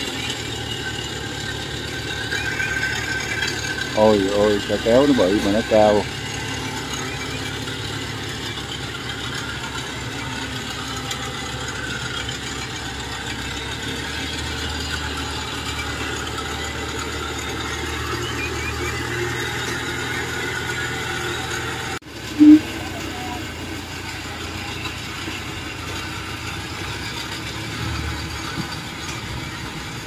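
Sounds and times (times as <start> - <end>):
tracked vehicle engine running: 0.0 - 30.0.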